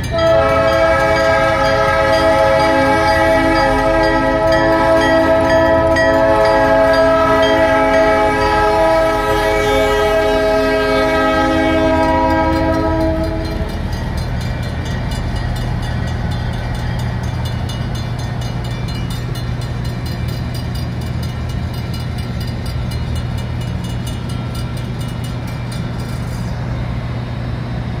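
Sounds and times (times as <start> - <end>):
locomotive horn blast: 0.0 - 13.9
crossing bell ringing: 0.0 - 26.6.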